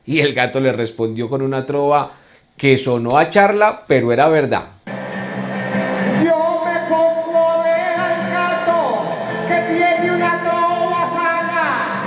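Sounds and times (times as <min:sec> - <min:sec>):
man singing into microphone: 0:06.2 - 0:12.0.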